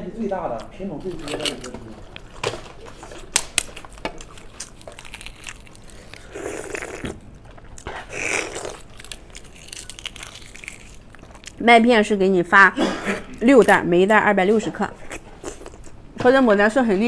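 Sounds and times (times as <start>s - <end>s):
eggshell cracking: 0.6s - 12.0s.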